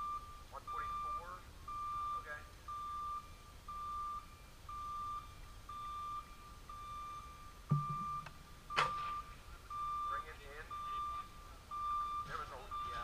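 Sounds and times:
electronic metronome beeping: 0.0 - 13.0.

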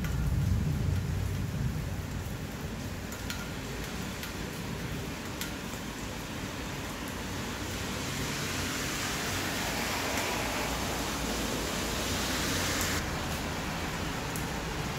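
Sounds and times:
steady rain falling: 0.0 - 14.9
water drips tapping: 3.0 - 6.0.

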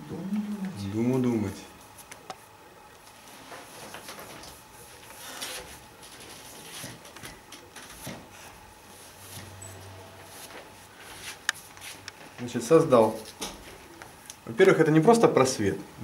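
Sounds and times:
fingertips swishing on canvas: 10.2 - 12.2.

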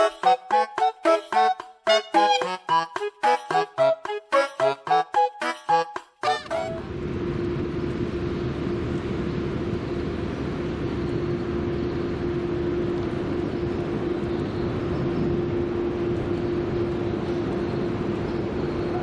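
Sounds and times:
constant low hum: 6.3 - 19.0.

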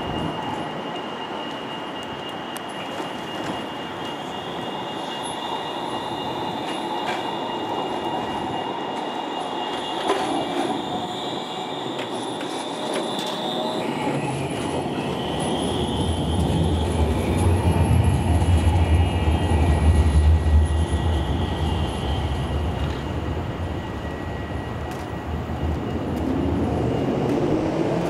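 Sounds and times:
high-pitched whining tones: 0.0 - 28.0
tram rumble: 0.0 - 28.0.

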